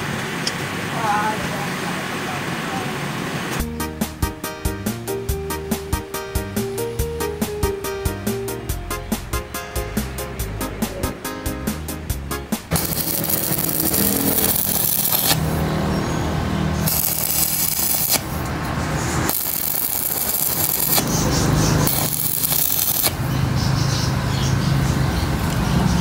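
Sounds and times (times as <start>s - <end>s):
welding arc crackling: 11.7s - 23.4s.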